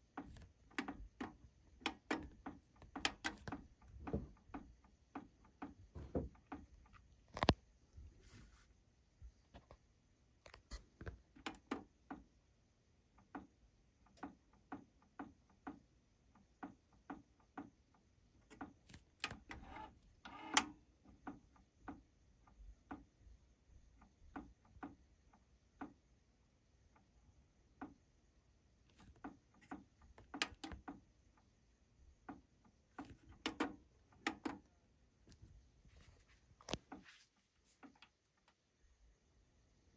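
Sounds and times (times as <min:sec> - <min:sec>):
cassette deck mechanical clicks: 0:00.0 - 0:03.9, 0:33.0 - 0:34.7.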